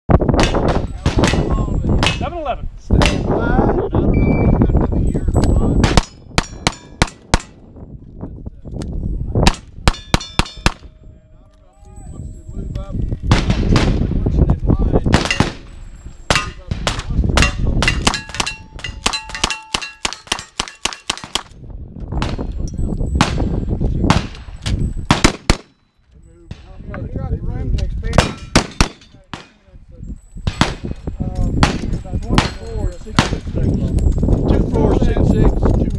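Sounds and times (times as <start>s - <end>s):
rifle firing rapid shots: 25.1s - 25.8s.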